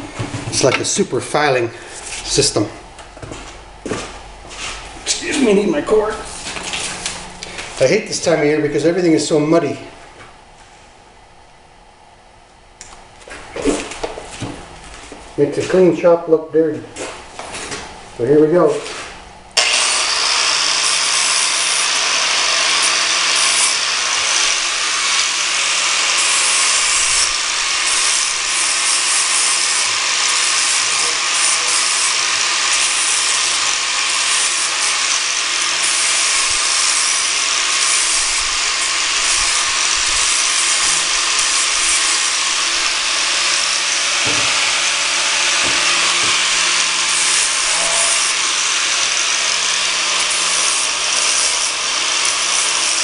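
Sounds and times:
angle grinder grinding metal: 4.0 - 9.9, 19.6 - 53.0.

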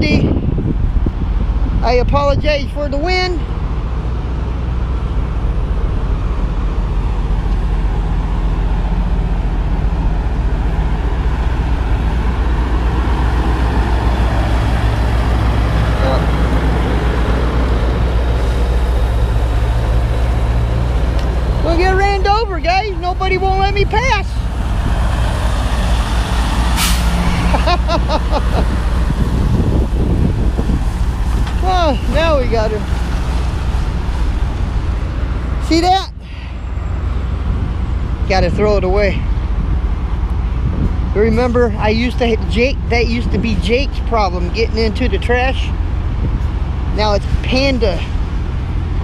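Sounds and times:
wind buffeting microphone: 0.0 - 49.0
air brakes hissing: 26.7 - 27.5.

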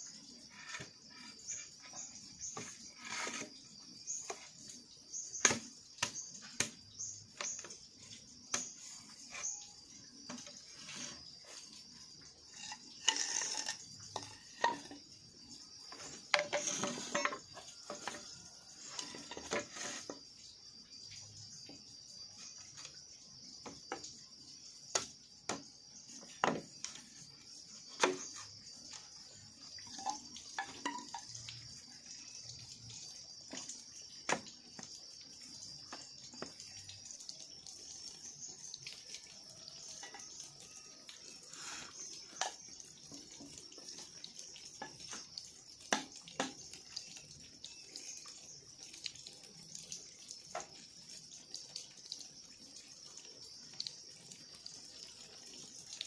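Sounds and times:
high-pitched hiss: 8.5 - 33.7, 41.2 - 42.8
bamboo poles knocking: 12.6 - 15.0, 15.9 - 18.3, 24.9 - 25.7, 26.4 - 27.0, 28.0 - 28.5, 29.9 - 31.4, 45.9 - 46.6.

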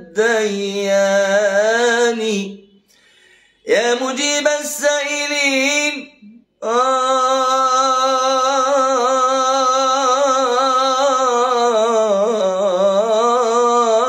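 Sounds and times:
man singing unaccompanied: 0.0 - 2.8, 3.6 - 14.0.

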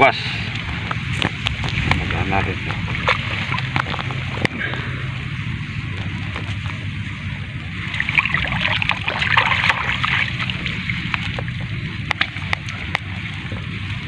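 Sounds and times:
steady low rumble: 0.0 - 14.0
water splashing: 0.0 - 14.0.

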